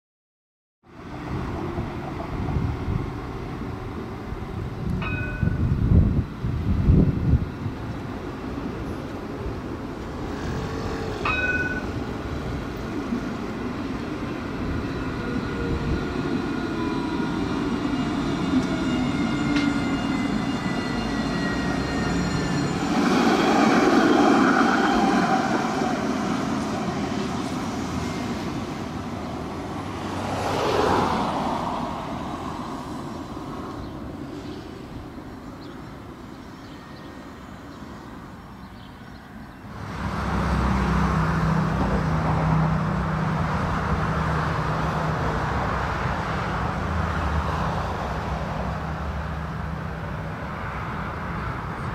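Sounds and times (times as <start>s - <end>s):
tram wheel and motor rush: 0.9s - 38.6s, 39.6s - 51.9s
tram motors whining: 7.8s - 38.6s.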